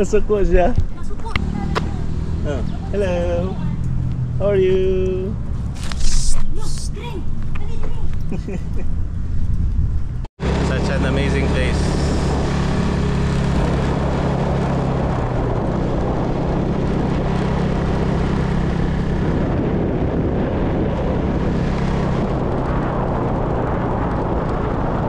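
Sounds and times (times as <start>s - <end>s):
wind and road noise: 0.0s - 25.0s
motorbike engine running: 9.8s - 25.0s.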